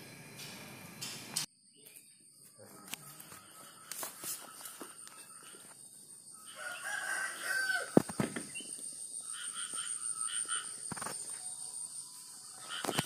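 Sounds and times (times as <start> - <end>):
rooster crowing: 6.3 - 8.0.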